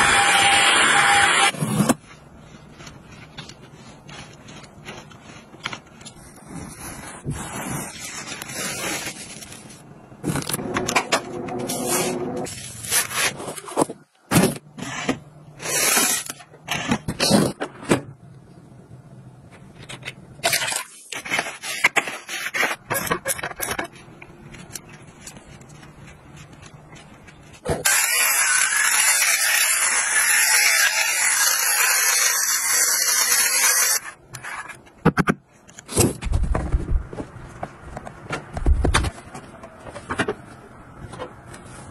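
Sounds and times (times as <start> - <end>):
blade slitting packing tape: 15.6 - 16.5.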